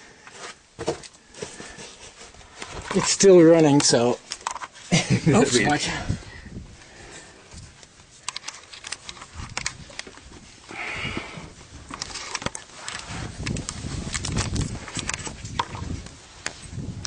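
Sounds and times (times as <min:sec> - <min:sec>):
camera handling noise: 0:07.8 - 0:10.3, 0:11.9 - 0:16.6.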